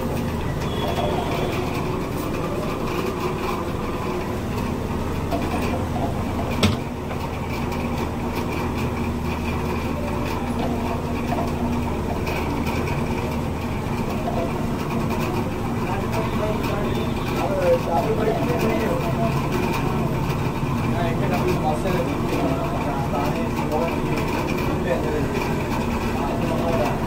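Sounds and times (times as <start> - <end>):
low mechanical hum and rumble: 0.0 - 27.0.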